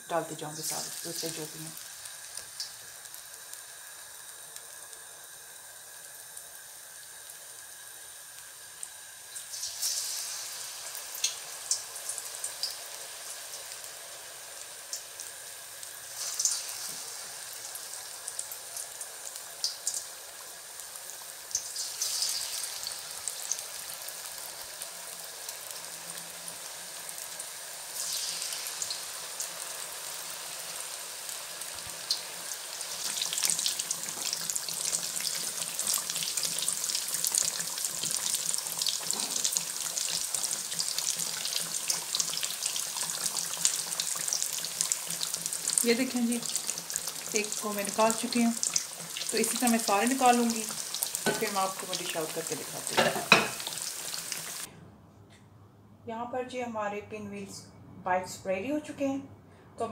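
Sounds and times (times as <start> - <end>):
food deep-frying in oil: 0.0 - 54.7.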